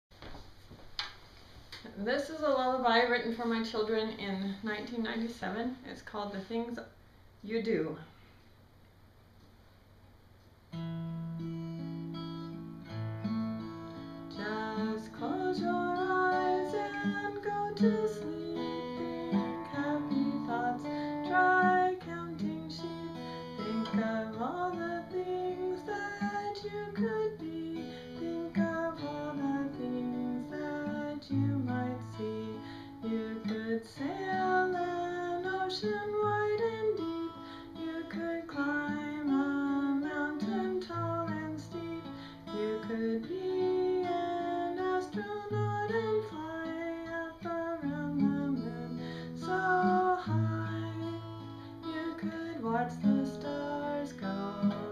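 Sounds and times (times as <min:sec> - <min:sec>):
acoustic guitar: 0:10.3 - 0:54.9
woman singing a lullaby: 0:14.2 - 0:54.9.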